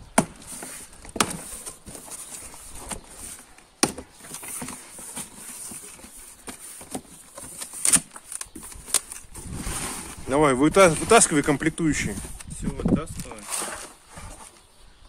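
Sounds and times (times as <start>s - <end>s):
cardboard flaps and packing rustling: 0.1s - 14.7s
tape being slit: 7.6s - 9.3s.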